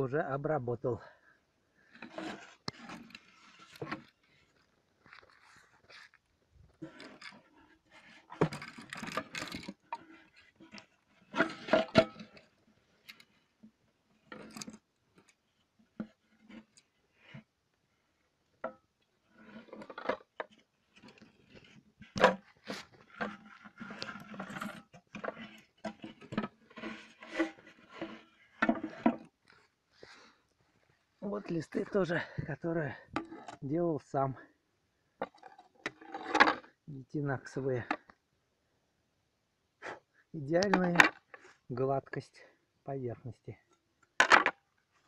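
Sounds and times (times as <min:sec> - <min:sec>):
hard plastic parts knocking and scraping: 0:02.0 - 0:04.2, 0:06.7 - 0:12.5, 0:19.5 - 0:29.4, 0:40.6 - 0:41.4.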